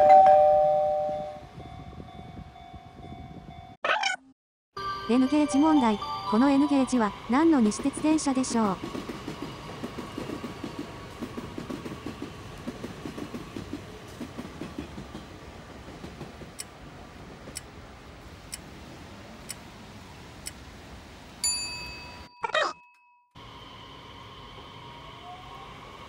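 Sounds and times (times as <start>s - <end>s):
bell-like chime: 0.0s - 3.8s, 4.8s - 7.1s, 21.4s - 23.2s.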